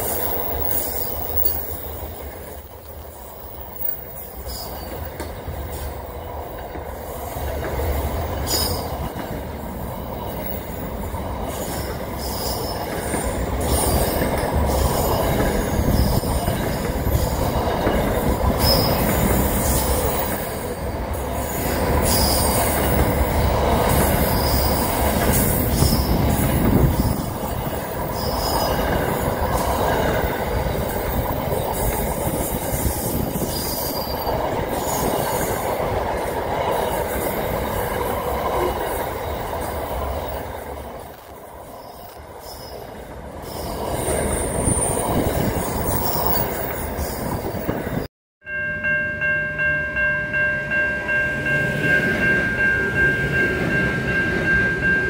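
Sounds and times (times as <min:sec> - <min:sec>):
train wheels rumbling on rail: 0:00.0 - 0:48.1
brief high wheel squeals: 0:03.2 - 0:05.1, 0:18.5 - 0:19.1, 0:33.0 - 0:35.1.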